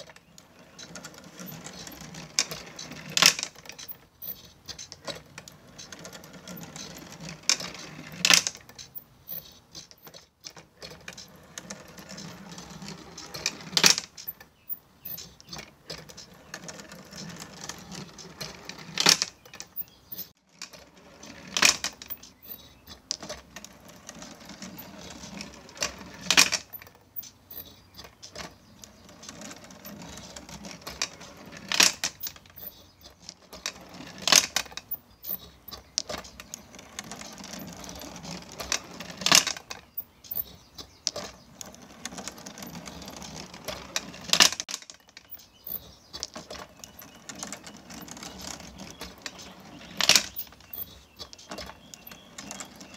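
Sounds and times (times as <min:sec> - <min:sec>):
glass marbles clicking along run: 0:00.1 - 0:10.3, 0:11.0 - 0:52.9.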